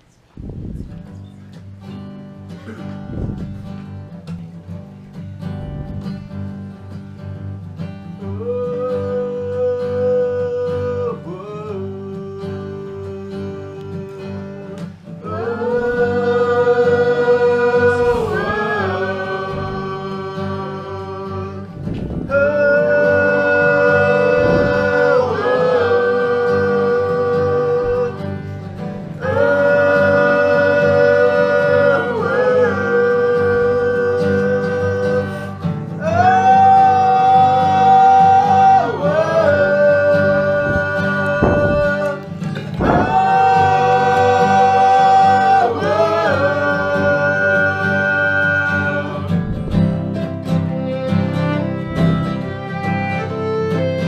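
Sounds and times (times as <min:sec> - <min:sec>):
voices singing long notes: 0:08.2 - 0:54.0
acoustic string band playing: 0:13.7 - 0:54.0.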